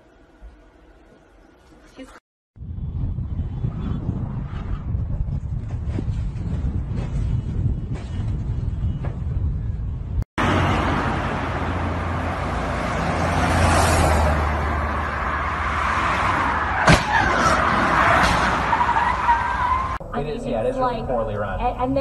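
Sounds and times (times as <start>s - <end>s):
wind noise: 2.6s - 10.2s
highway traffic: 2.6s - 22.0s
vehicles crashing: 10.4s - 22.0s.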